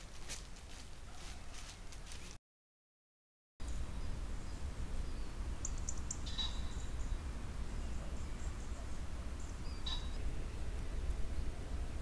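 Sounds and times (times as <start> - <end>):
low outdoor rumble and hiss: 3.6 - 12.0.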